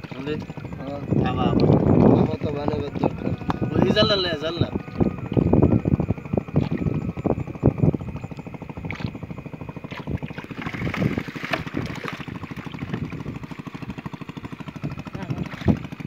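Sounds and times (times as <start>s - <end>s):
fish flapping and splashing: 0.0s - 0.6s, 8.2s - 14.2s, 15.3s - 16.0s
engine running: 0.0s - 16.0s.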